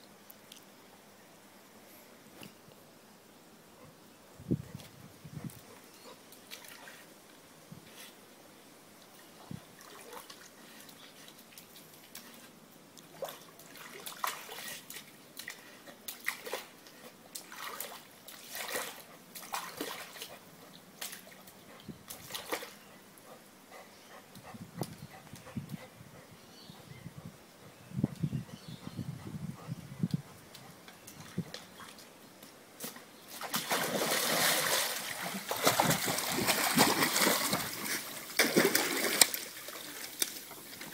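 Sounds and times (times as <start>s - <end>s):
dog splashing in water: 13.1s - 16.7s, 17.4s - 20.3s, 22.1s - 22.8s, 33.3s - 40.9s.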